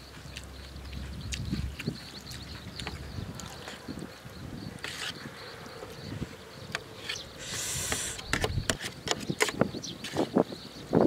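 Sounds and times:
person chewing: 0.2s - 3.9s
hissing slurp: 7.4s - 8.3s.

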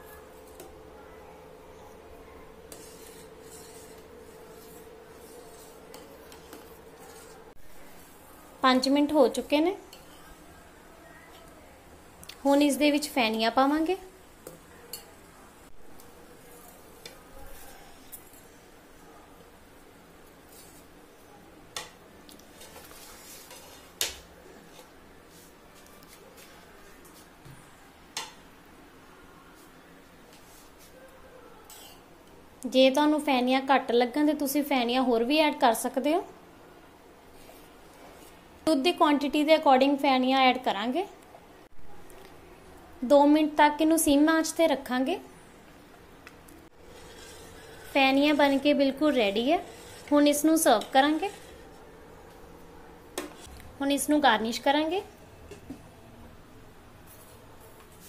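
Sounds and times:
spoon scraping steel pot: 2.7s - 8.2s, 8.8s - 10.4s, 22.5s - 24.9s, 31.7s - 32.1s, 46.8s - 51.8s.

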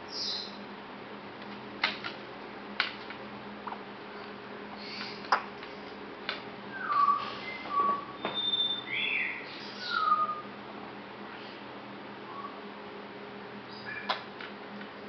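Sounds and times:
parrot whistles and chirps: 6.7s - 10.5s.

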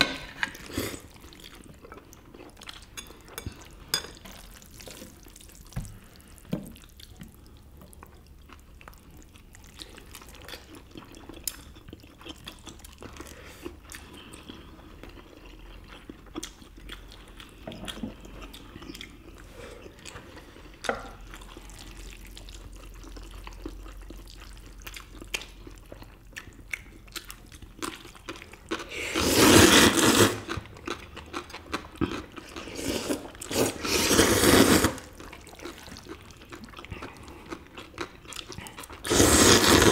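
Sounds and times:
quiet chewing: 0.3s - 28.9s, 29.7s - 39.8s
wet noodle slurps: 29.0s - 30.5s, 32.7s - 35.1s, 39.0s - 39.9s.

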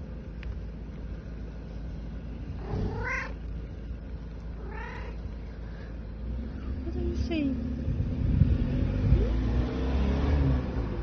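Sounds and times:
cat meowing: 2.6s - 3.4s, 4.6s - 5.3s.

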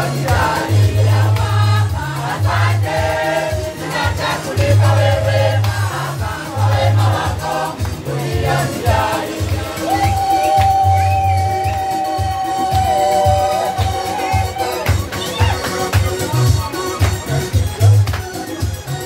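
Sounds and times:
pulsing bass line: 0.0s - 18.2s
choir and congregation singing gospel: 0.0s - 19.0s
percussion: 0.0s - 19.0s
hand claps: 0.1s - 0.7s, 1.3s - 1.6s, 4.6s - 6.0s, 7.7s - 8.1s, 8.8s - 19.0s.

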